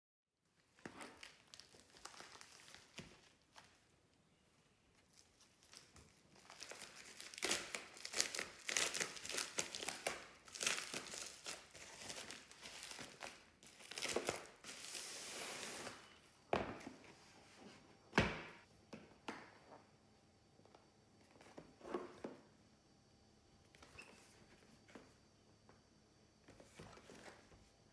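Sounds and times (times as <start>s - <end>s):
plastic mailer bag crinkling: 0.7s - 3.8s, 5.1s - 15.2s.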